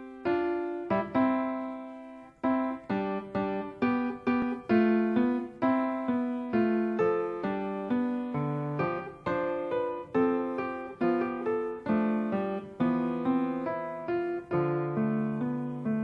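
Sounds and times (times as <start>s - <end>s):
piano playing simple melody: 0.0s - 16.0s.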